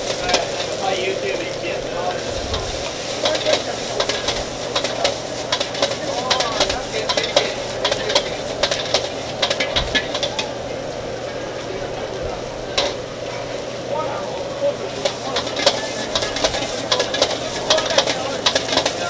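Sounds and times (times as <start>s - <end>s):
sizzle of frying: 0.0s - 19.0s
metal ladle clanking on a wok: 2.5s - 10.5s, 12.8s - 13.0s, 15.0s - 19.0s.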